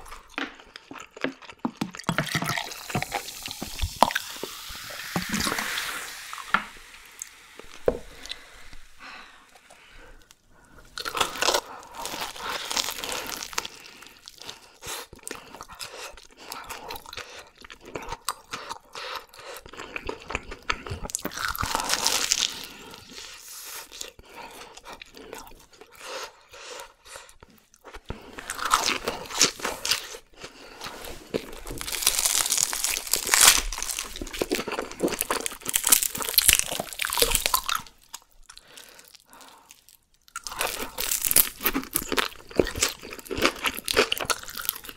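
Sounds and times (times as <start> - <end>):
crunching fried food: 10.9 - 15.7, 19.7 - 22.9, 31.3 - 44.9.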